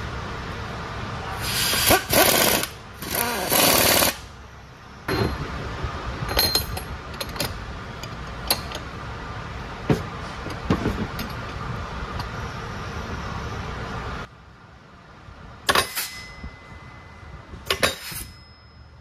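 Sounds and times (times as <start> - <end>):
air tool rattling and hissing: 1.4 - 4.3
metal clinks and knocks: 5.1 - 5.6, 6.2 - 8.9.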